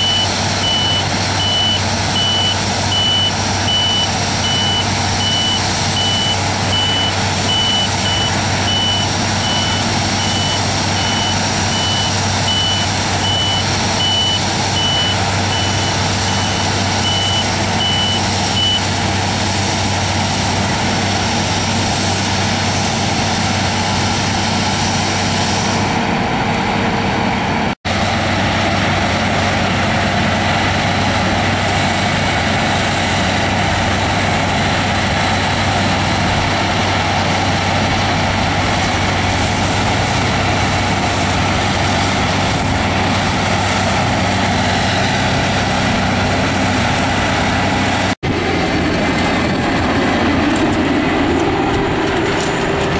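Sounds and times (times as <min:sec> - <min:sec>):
high electronic warning beep: 0:00.0 - 0:18.8
combine harvester droning: 0:00.0 - 0:52.9.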